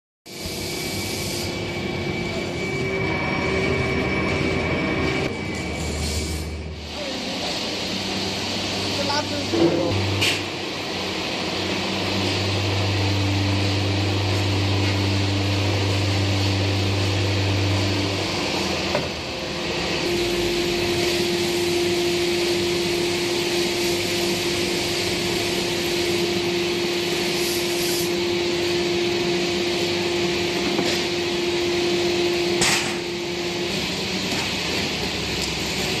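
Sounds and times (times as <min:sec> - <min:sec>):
hydraulic press hum and hiss: 0:00.3 - 0:02.6, 0:05.5 - 0:36.0
deeper hum: 0:00.5 - 0:36.0
held tone: 0:20.0 - 0:30.6.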